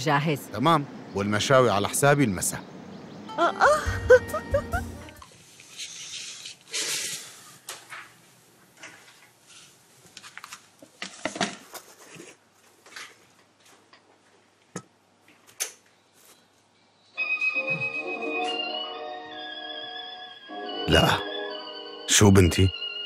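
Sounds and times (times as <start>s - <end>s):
rustle: 5.2s - 14.6s.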